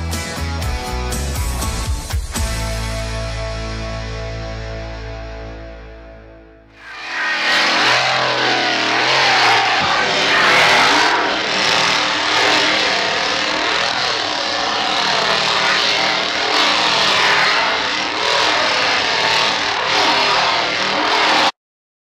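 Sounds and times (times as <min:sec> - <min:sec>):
chainsaw revving: 0:06.8 - 0:21.5.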